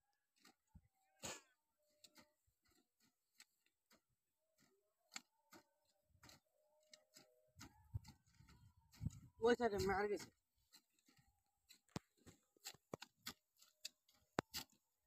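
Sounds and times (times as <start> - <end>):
hoes chopping soil: 0.3 - 15.0.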